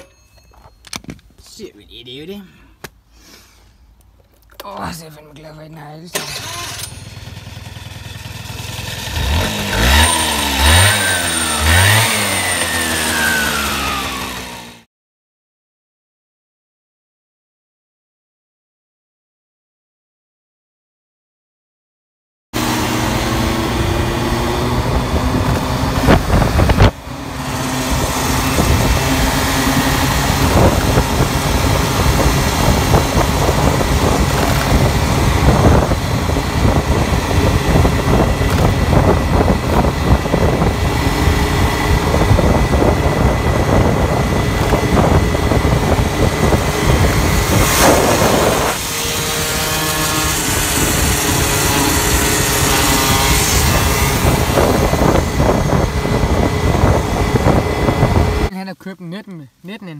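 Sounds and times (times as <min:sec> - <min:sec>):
two-stroke moped engine: 0:06.1 - 0:14.9, 0:22.6 - 0:58.5.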